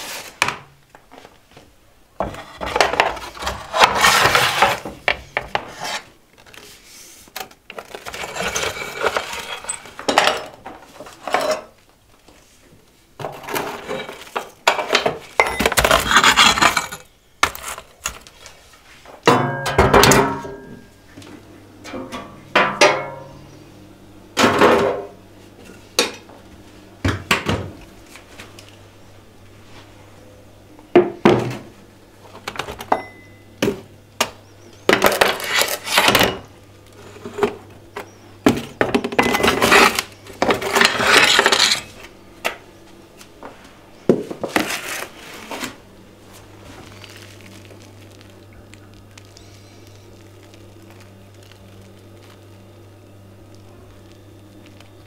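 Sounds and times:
scraping or rubbing: 0.0 - 0.4, 2.3 - 4.9, 5.6 - 7.2, 7.8 - 9.9, 15.8 - 19.0, 35.1 - 36.2, 39.6 - 42.0, 44.4 - 48.2
faint steady hum: 0.0 - 55.0.

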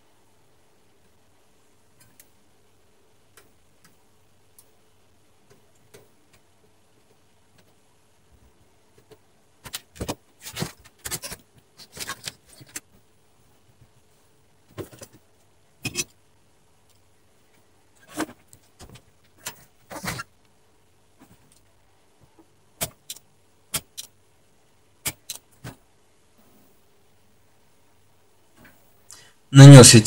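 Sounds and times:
circuit board and tools rattling: 9.6 - 12.9.

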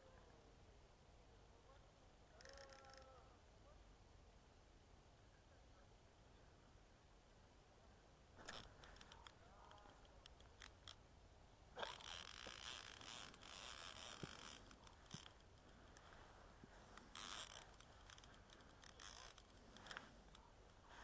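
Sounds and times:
faint clicks: 2.4 - 3.3, 8.4 - 11.0, 11.8 - 21.0.

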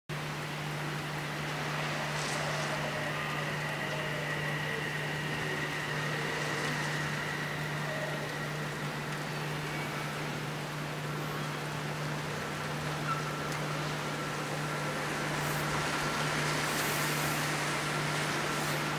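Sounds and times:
constant low hum: 0.1 - 18.9
rain hiss: 0.1 - 18.9
faint high steady tone: 0.9 - 11.6.

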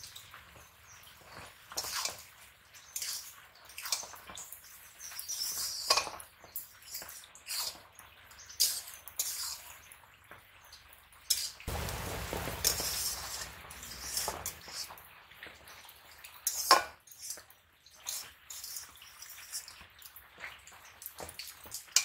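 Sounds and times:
light sizzling: 0.0 - 20.2
spatula scraping a wok: 1.7 - 4.2, 8.6 - 9.7, 11.3 - 15.0
steady hiss: 11.7 - 14.9.

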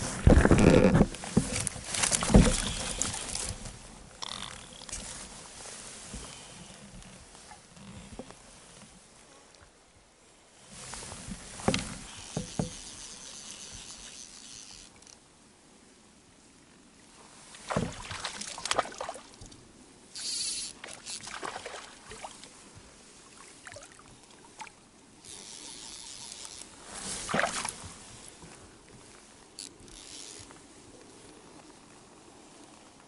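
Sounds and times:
fishing gear knocking and rustling: 0.0 - 5.4, 10.9 - 15.2, 25.2 - 31.7.

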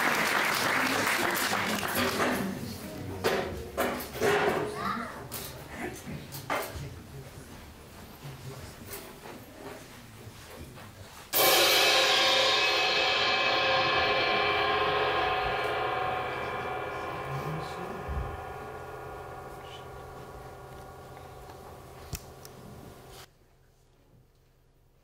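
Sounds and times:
cymbal or gong crash ringing: 11.4 - 23.3.

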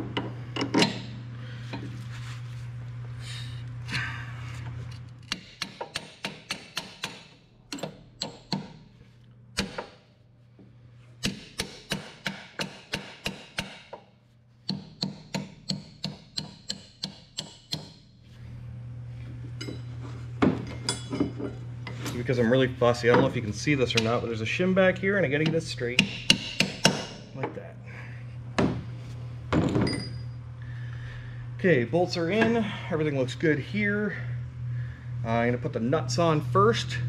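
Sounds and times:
steady low hum: 0.0 - 37.0
hammer tapping on steel: 5.3 - 8.7, 14.7 - 18.0.

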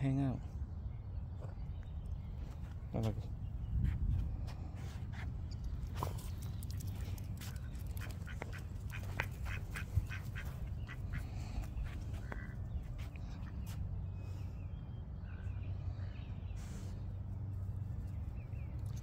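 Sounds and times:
steady low rumble: 0.0 - 19.0
duck quacking: 8.0 - 11.7.

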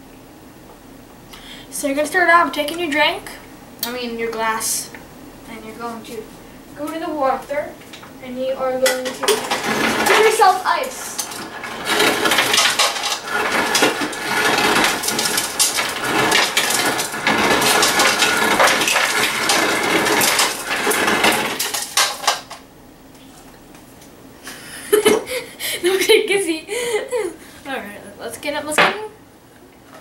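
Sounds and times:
ice cubes clattering into glass: 11.2 - 22.6.

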